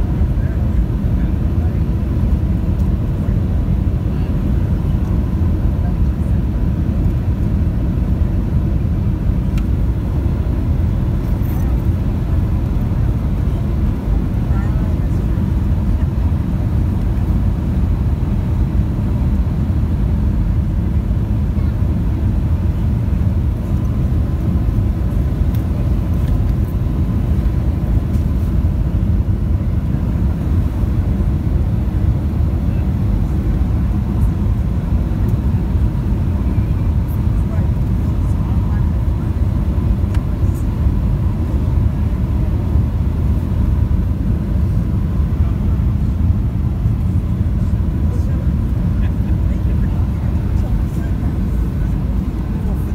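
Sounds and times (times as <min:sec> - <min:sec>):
jet airliner rolling on runway: 0:00.0 - 0:52.9
faint thin whine: 0:11.2 - 0:12.0.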